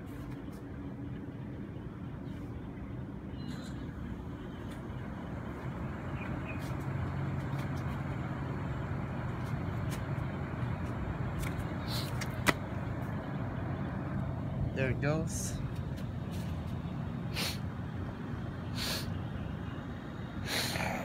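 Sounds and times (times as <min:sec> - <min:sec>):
air conditioner low hum: 0:00.0 - 0:21.0.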